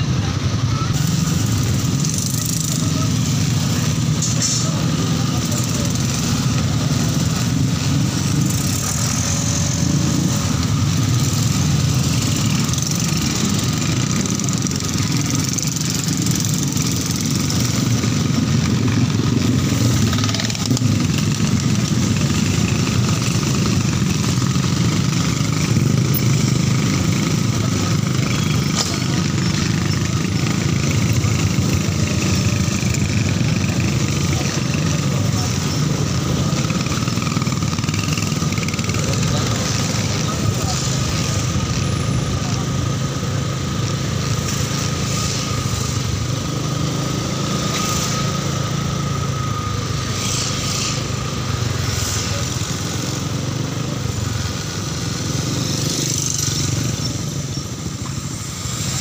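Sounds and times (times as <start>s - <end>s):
motorcycle engine running: 0.0s - 59.0s
road noise: 0.0s - 59.0s
surrounding traffic engines: 0.0s - 59.0s.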